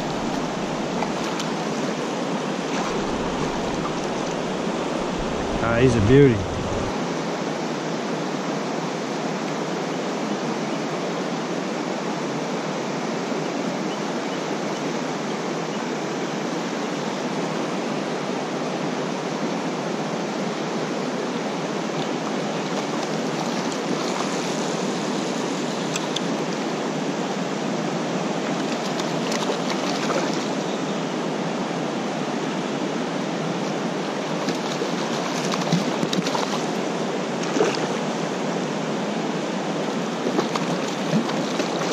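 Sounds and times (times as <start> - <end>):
creek rushing over rocks: 0.0 - 7.0, 40.0 - 41.9
light water splashes: 2.6 - 6.9, 28.4 - 30.6, 34.1 - 38.2, 40.2 - 41.9.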